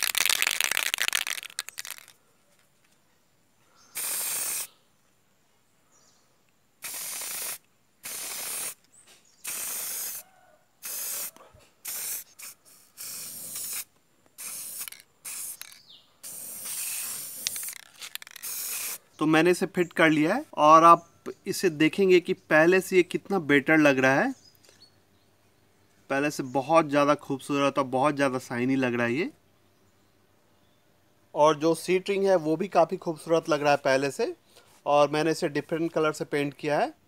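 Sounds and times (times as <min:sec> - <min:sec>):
aerosol spray can hissing: 0:00.0 - 0:02.1, 0:04.0 - 0:04.7, 0:06.8 - 0:08.8, 0:09.4 - 0:10.2, 0:10.8 - 0:19.0.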